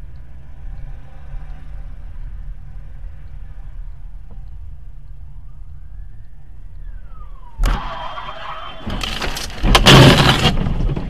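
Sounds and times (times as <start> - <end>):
engine and road rumble: 0.0 - 11.0
faint rising and falling tone: 1.6 - 8.8.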